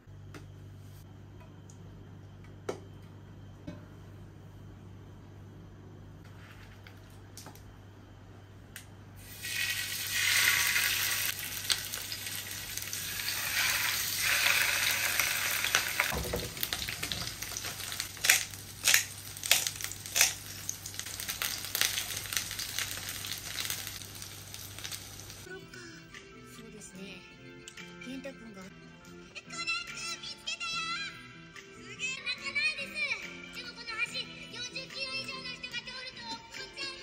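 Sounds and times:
fish sizzling in hot oil: 9.2s - 25.5s.

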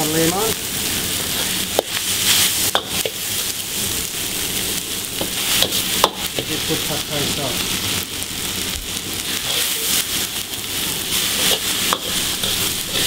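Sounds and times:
noodles sizzling in a wok: 0.0s - 13.0s
metal ladle scraping a wok: 11.1s - 13.0s.

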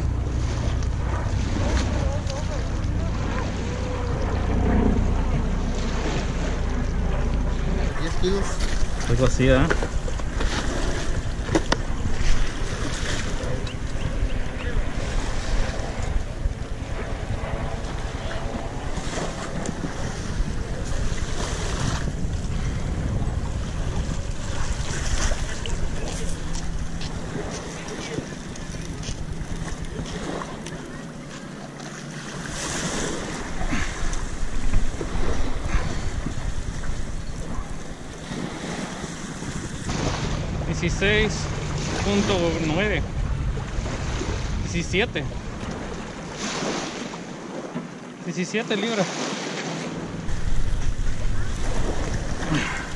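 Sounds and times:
wind buffeting microphone: 0.0s - 48.0s, 49.9s - 52.9s.

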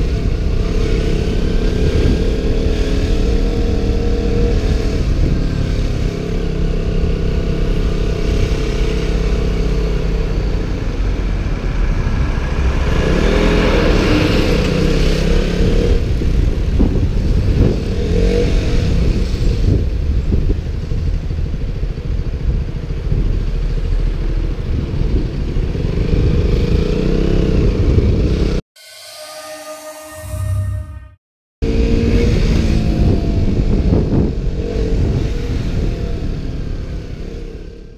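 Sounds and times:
motorcycle engine revving: 0.0s - 19.6s
wind rumble on microphone: 0.0s - 28.6s, 31.6s - 37.9s.

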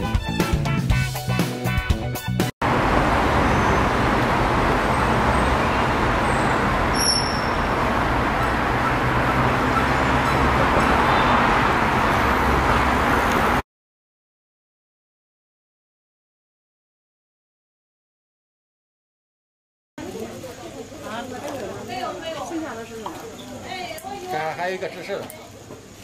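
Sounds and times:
passing vehicles: 2.6s - 13.6s
high-pitched chirps: 6.9s - 7.8s.

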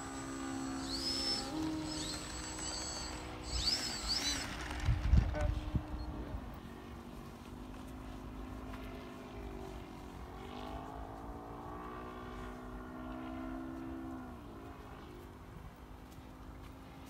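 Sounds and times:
model plane engine buzzing: 0.0s - 7.0s.

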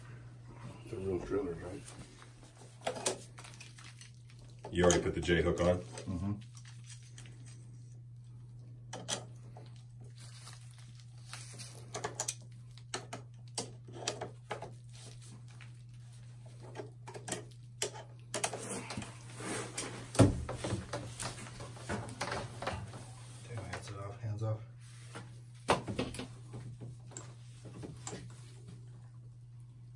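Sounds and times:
steady low hum: 0.0s - 29.9s
plastic tubing being handled: 1.8s - 8.0s.

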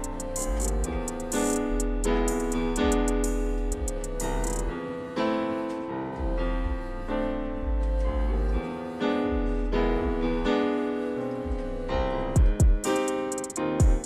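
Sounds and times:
low bass line: 0.0s - 4.8s, 6.1s - 10.6s, 11.4s - 12.8s
keyboard chords: 0.0s - 14.0s.

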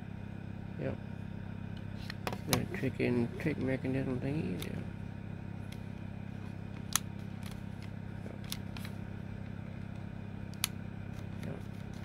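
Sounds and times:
steady low hum: 0.0s - 12.0s
sharp plastic clicks: 10.5s - 10.8s.

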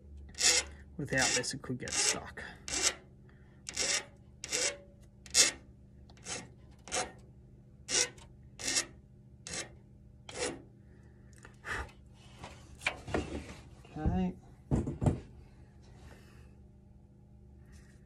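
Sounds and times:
hand file scraping metal: 0.3s - 3.0s, 3.7s - 5.6s, 6.2s - 7.2s, 7.9s - 10.6s.

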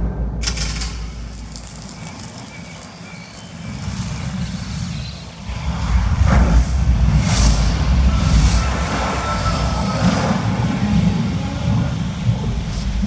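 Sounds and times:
low rumble: 0.0s - 13.0s
whooshing sweeps: 3.8s - 12.8s.

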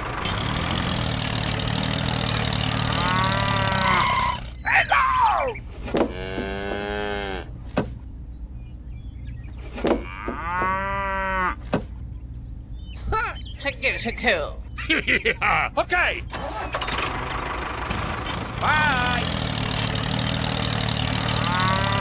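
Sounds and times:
steady rumble: 0.0s - 4.6s
cow mooing: 2.8s - 4.4s, 6.0s - 7.5s, 10.0s - 11.6s, 21.1s - 22.0s.

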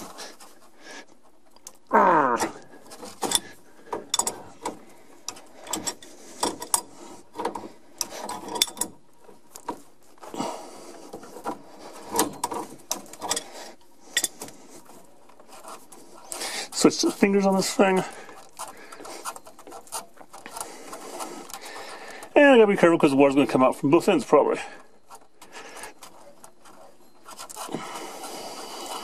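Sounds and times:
wrench clicking and scraping metal: 3.2s - 9.0s.

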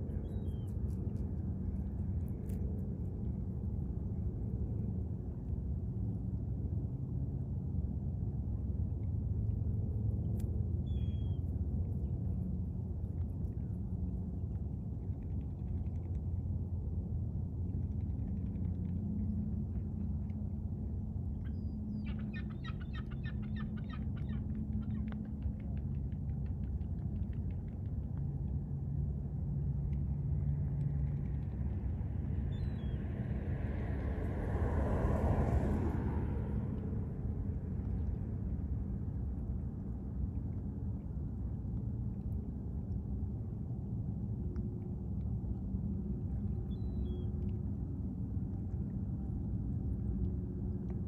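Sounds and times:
motor running with low rumble: 0.0s - 51.0s.

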